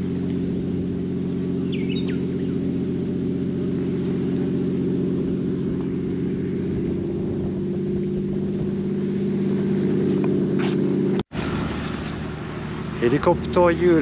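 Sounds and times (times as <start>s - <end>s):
helicopter engine and rotor hum: 1.5s - 4.5s.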